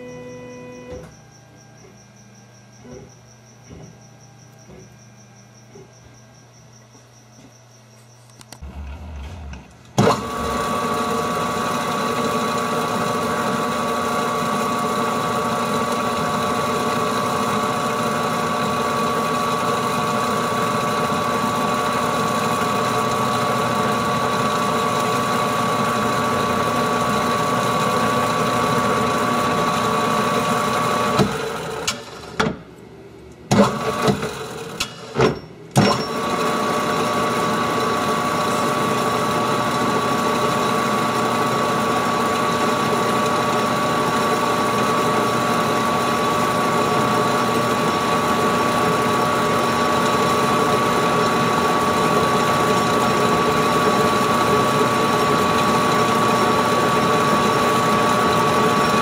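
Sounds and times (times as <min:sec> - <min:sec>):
metal lathe whining: 0:08.6 - 0:32.4, 0:35.8 - 0:59.0.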